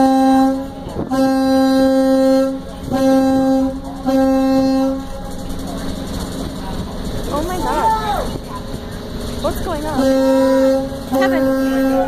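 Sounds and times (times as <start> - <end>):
ship horn blasts: 0.0 - 6.2, 9.5 - 12.0.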